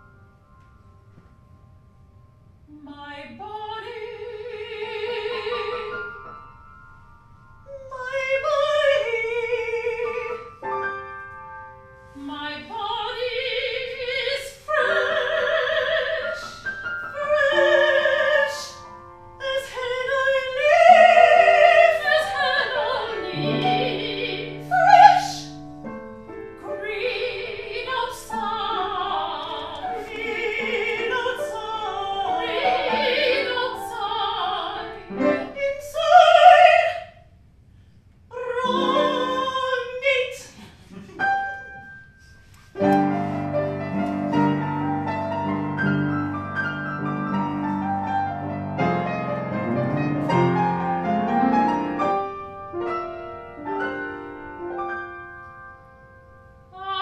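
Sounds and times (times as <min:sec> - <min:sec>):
piano chords: 0:00.0 - 0:37.4, 0:38.3 - 0:57.0
woman singing opera: 0:02.7 - 0:06.3, 0:07.7 - 0:10.6, 0:12.1 - 0:18.8, 0:19.4 - 0:25.6, 0:26.6 - 0:37.2, 0:38.3 - 0:41.9, 0:56.7 - 0:57.0.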